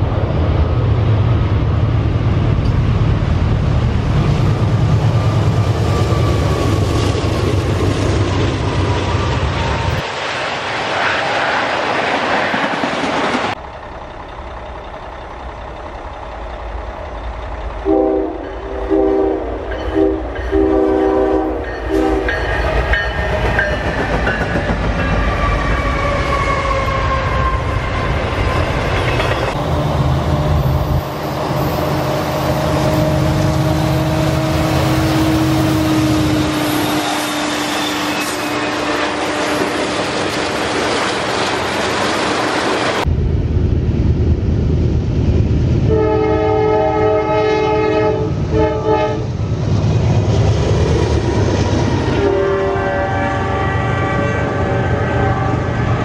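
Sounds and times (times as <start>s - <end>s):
deep rumble of tank cars: 0.0s - 10.0s, 13.3s - 20.6s, 43.0s - 52.0s
freight train rolling on track: 0.0s - 56.0s
locomotive horn blasts: 17.8s - 22.5s, 25.2s - 28.1s, 31.9s - 40.0s, 45.9s - 49.3s, 52.2s - 56.0s.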